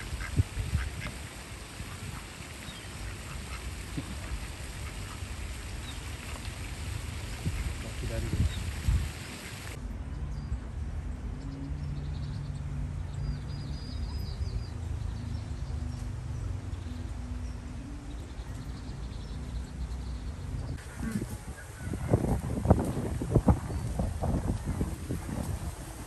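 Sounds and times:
small birds chirping: 0.0 - 9.8.

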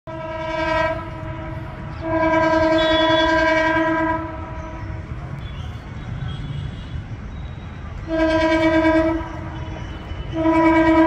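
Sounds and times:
train horn blasts: 0.1 - 5.0, 8.0 - 11.0.

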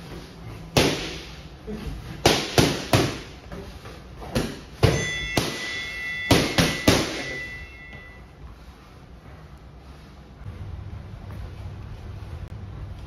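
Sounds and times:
high ringing tone: 4.8 - 8.6.

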